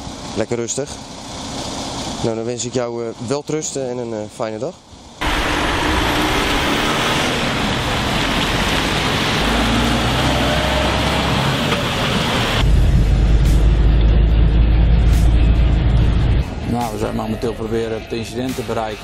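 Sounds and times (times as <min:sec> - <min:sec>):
tyres hissing on wet road: 0:00.0 - 0:02.4, 0:05.0 - 0:12.7
truck engine drone from cab: 0:00.0 - 0:03.6, 0:04.7 - 0:18.9
trucks pulling away: 0:04.9 - 0:19.0.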